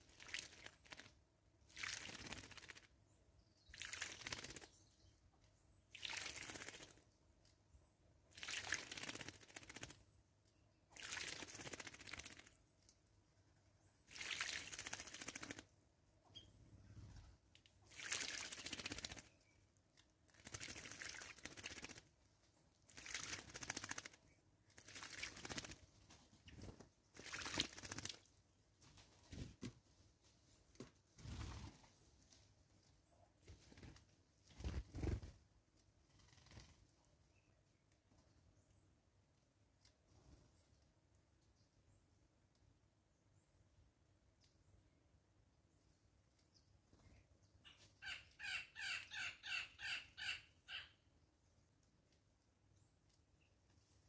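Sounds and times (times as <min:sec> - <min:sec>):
bird splashing in water: 0:00.1 - 0:02.9, 0:03.7 - 0:04.7, 0:05.9 - 0:07.0, 0:08.3 - 0:10.0, 0:10.9 - 0:12.6, 0:14.1 - 0:15.6, 0:17.9 - 0:19.4, 0:20.3 - 0:22.1, 0:22.9 - 0:24.2, 0:24.8 - 0:25.8, 0:27.2 - 0:28.3.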